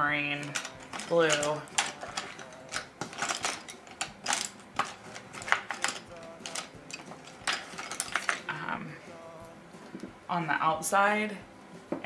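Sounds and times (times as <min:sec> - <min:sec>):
colored pencils clattering: 0:00.2 - 0:08.6.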